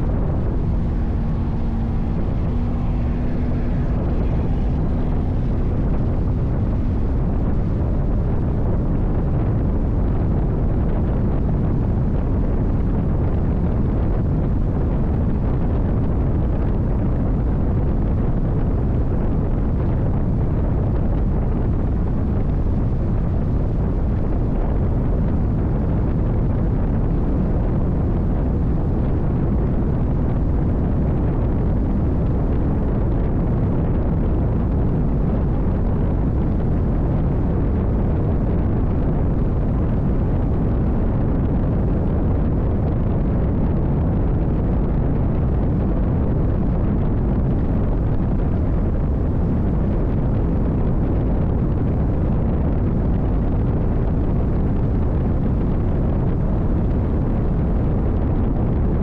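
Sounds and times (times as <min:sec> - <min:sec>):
boat engine roaring: 0:00.0 - 0:13.1
wind on microphone: 0:00.0 - 0:59.0.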